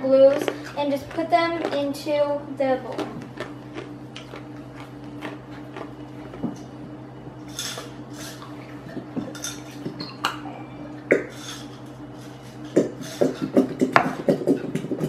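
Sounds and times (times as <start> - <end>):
steady low hum: 0.0 - 15.0
tableware clinks and knocks: 9.2 - 10.4.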